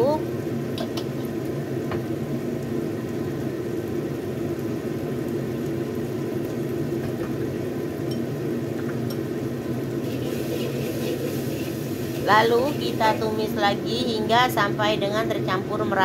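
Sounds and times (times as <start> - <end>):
sauce cooking in a wok: 0.0 - 15.9
low mechanical hum: 0.0 - 16.0
metal spatula scraping wok: 10.0 - 11.9.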